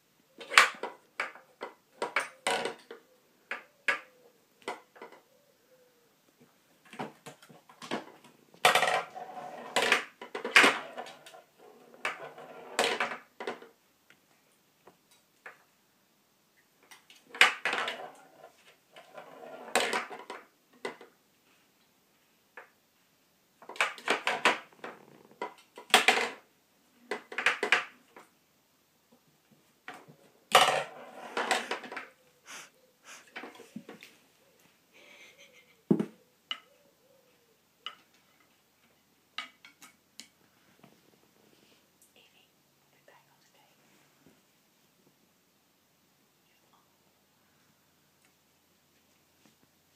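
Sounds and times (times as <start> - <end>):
pool balls clacking: 29.9 - 32.1
balls knocking wooden sides: 35.9 - 36.2.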